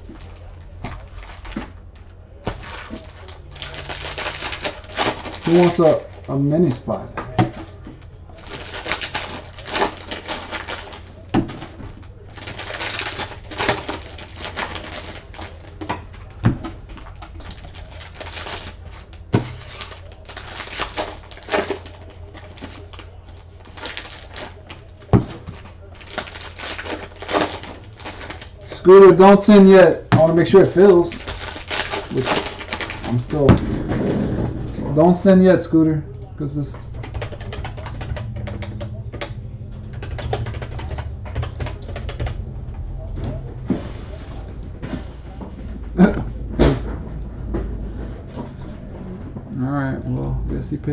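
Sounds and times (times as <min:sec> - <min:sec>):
foil packs crinkling and tearing: 0:00.0 - 0:07.0, 0:08.4 - 0:33.6
low steady hum: 0:00.0 - 0:50.9.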